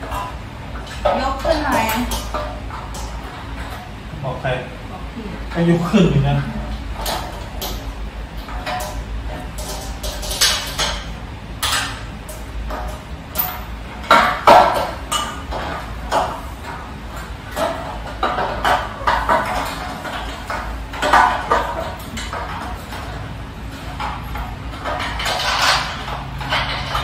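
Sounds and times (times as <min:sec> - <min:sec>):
metallic clinks and knocks: 0:09.6 - 0:15.7.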